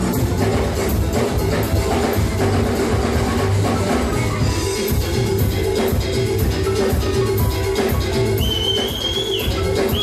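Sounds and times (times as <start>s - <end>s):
live band music: 0.0s - 10.0s
high wavering whistle tone: 7.2s - 10.0s.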